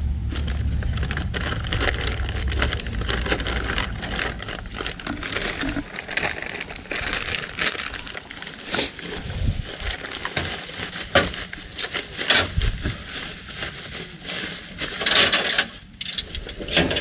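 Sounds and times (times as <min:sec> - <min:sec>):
low rumble: 0:00.0 - 0:11.7
plastic packaging crinkling: 0:00.3 - 0:17.0.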